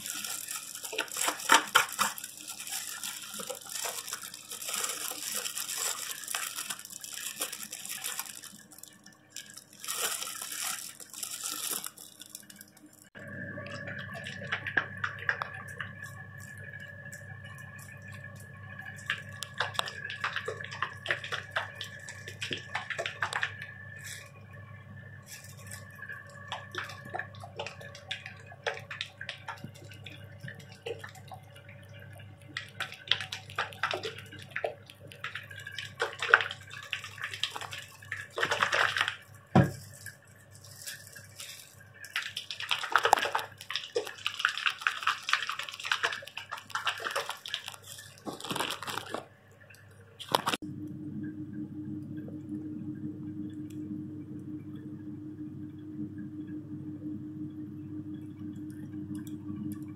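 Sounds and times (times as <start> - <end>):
liquid sloshing in shaken bottle: 0.0 - 24.5, 25.2 - 50.6
low hum: 0.0 - 35.8, 49.2 - 59.9.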